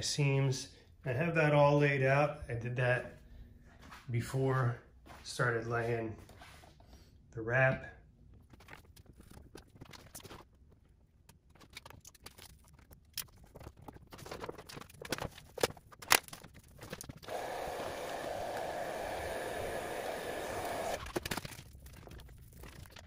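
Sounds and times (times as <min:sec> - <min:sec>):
vinyl film crackling and crinkling: 0:08.3 - 0:17.4, 0:20.9 - 0:23.0.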